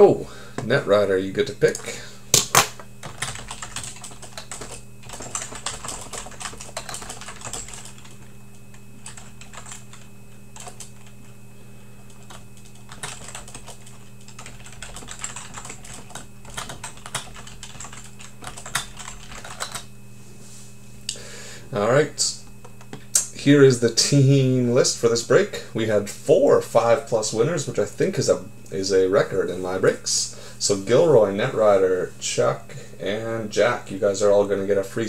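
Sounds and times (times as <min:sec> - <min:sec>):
steady low hum: 0:00.0 - 0:35.0
keyboard typing: 0:01.7 - 0:08.3, 0:09.0 - 0:11.2, 0:12.1 - 0:19.9.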